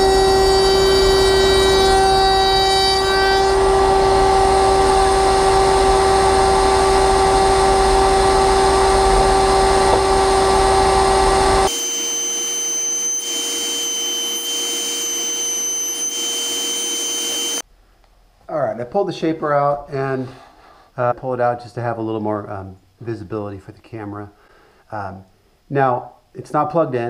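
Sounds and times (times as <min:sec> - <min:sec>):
router whining: 0:00.0 - 0:17.6.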